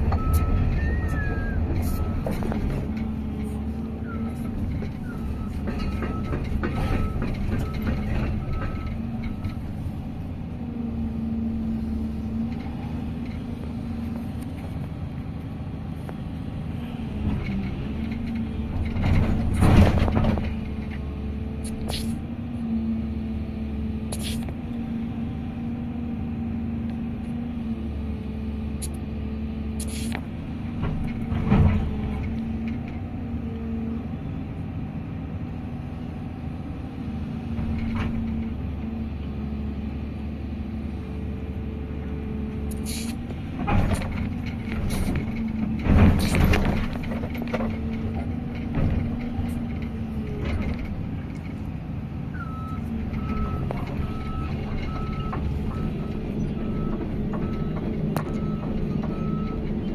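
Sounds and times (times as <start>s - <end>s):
heavy machine engine running: 0.0s - 59.9s
loud clatter: 17.3s - 20.8s, 43.6s - 51.5s.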